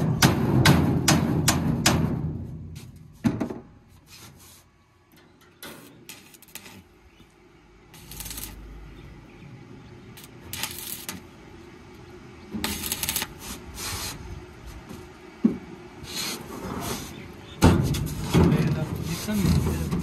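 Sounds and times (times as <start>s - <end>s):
arc welder crackling: 5.2s - 14.9s.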